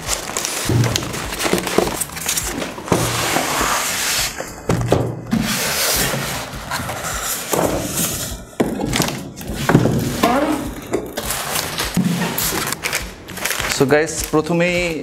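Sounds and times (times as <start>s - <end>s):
cardboard and foam packaging rustling: 0.0s - 15.0s
knocks and thuds: 0.6s - 3.2s, 4.6s - 11.2s.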